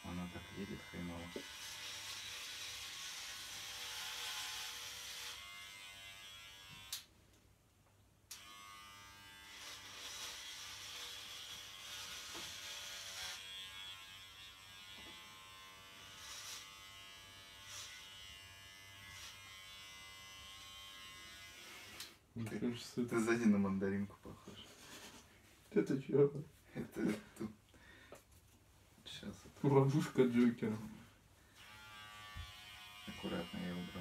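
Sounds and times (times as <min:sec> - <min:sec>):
electric hair clipper buzzing: 0:00.1 - 0:07.1, 0:08.3 - 0:22.2, 0:31.6 - 0:34.0.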